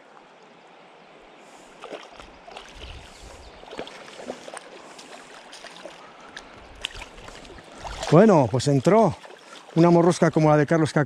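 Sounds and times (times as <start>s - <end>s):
low rumble of water: 0.0s - 10.6s
river water flowing: 0.0s - 11.0s
small splashes and clicks: 1.8s - 3.1s, 3.7s - 9.9s.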